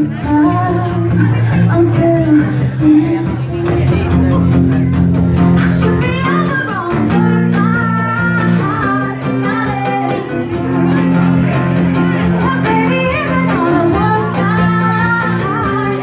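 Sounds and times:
woman singing: 0.0 - 4.2, 5.6 - 11.2, 12.3 - 16.0
guitar chords: 0.0 - 16.0.

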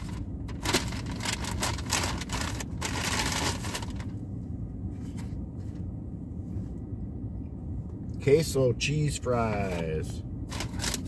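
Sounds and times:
takeout packaging crinkling: 0.0 - 4.1, 10.5 - 11.0
steady low rumble: 0.0 - 11.0.

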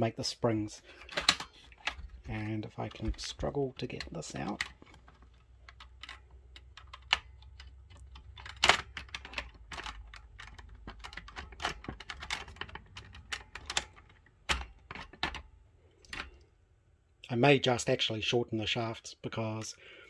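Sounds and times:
plastic rotors clicking and knocking: 1.0 - 16.4.

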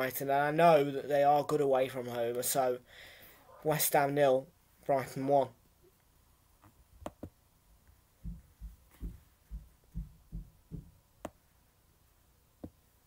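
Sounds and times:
faint dull low thumps: 8.2 - 11.1.

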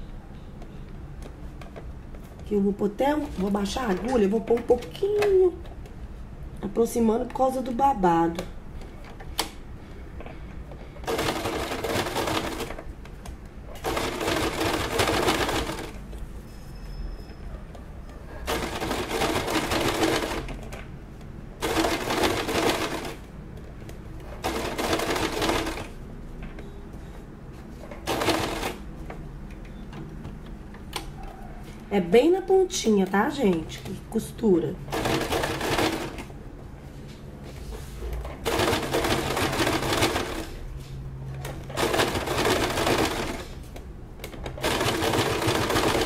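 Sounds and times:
sewing machine stitching: 11.0 - 12.8, 13.8 - 16.0, 18.4 - 20.7, 21.6 - 23.2, 24.4 - 26.0, 28.0 - 28.8, 34.9 - 36.3, 38.4 - 40.6, 41.4 - 43.6, 44.2 - 46.0.

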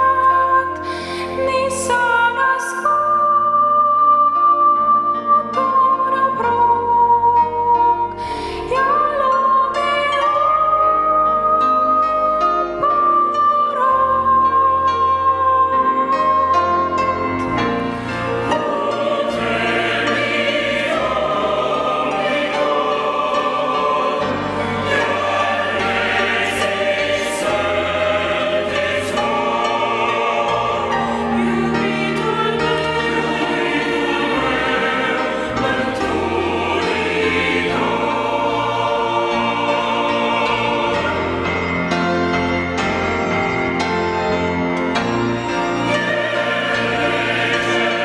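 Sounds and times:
church choir singing a hymn: 0.0 - 48.0.

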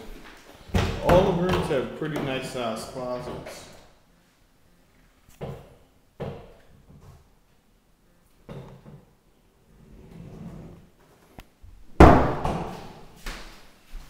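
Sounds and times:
closet door knocks and bumps: 0.7 - 1.7, 5.4 - 7.2, 12.0 - 12.9.

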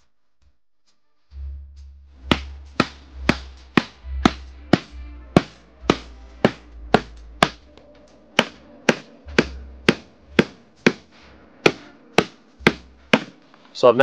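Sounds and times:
hammer striking wooden board: 2.2 - 7.7, 8.4 - 13.4.

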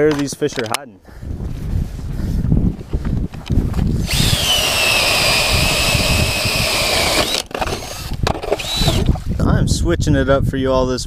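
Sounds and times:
cordless drill whining: 3.9 - 9.3.

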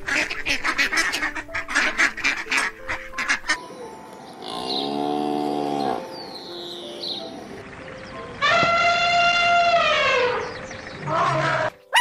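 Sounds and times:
ducks quacking: 0.0 - 3.6, 7.2 - 12.0
cow mooing: 4.4 - 6.2.

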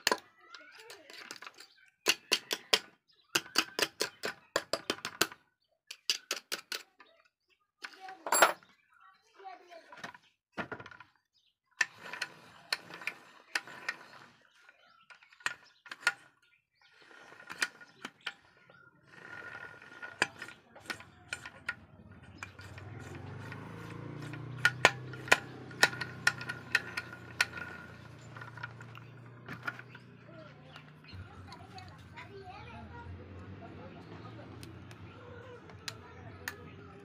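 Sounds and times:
metal gears clicking and clinking: 22.4 - 30.2.

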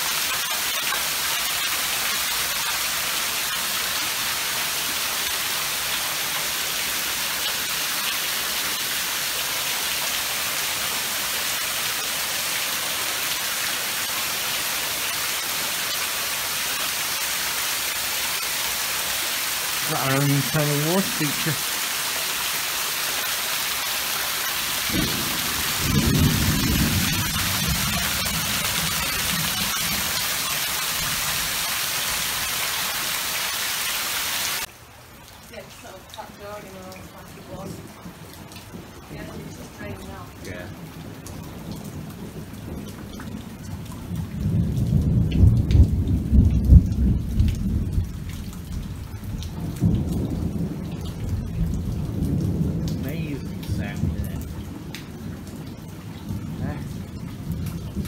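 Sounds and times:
heavy rain falling into pool: 0.0 - 58.0
low thunder rumble: 24.8 - 30.1, 37.8 - 58.0.

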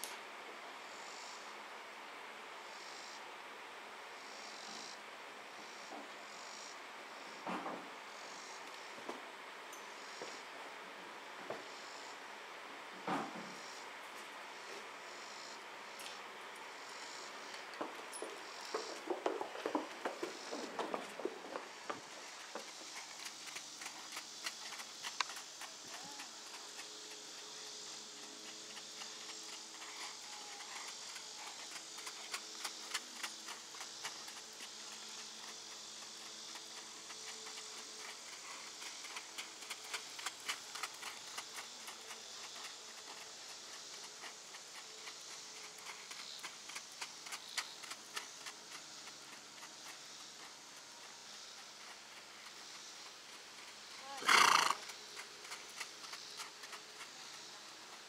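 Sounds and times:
high insect drone: 0.6 - 58.0
hooves on gravel: 17.0 - 58.0.

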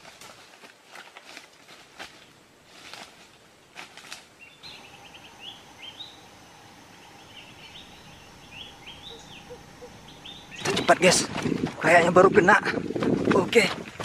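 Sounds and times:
footsteps crunching through dry leaves: 0.0 - 7.1
rising bird chirps: 4.4 - 11.3.

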